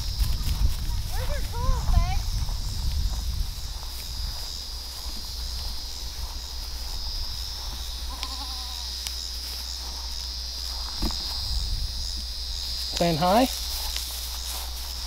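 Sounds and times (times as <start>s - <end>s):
high-pitched insect drone: 0.0s - 15.0s
goat bleating faintly: 8.1s - 8.9s.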